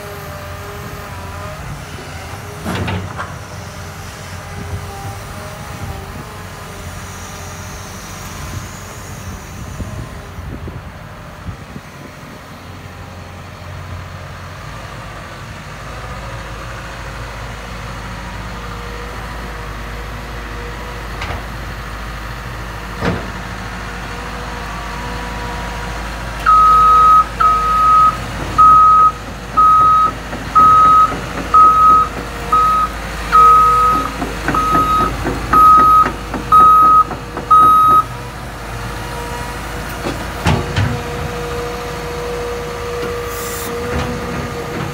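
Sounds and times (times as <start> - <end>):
diesel engine running: 0.0 - 44.9
high single-tone alarm beeps: 26.5 - 38.1.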